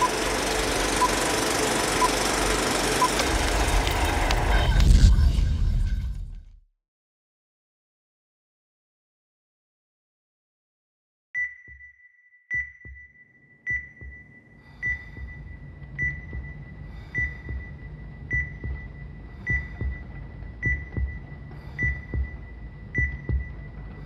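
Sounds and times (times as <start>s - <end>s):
heart monitor beeping: 0.0s - 3.5s, 11.4s - 24.0s
low steady drone: 14.6s - 24.0s.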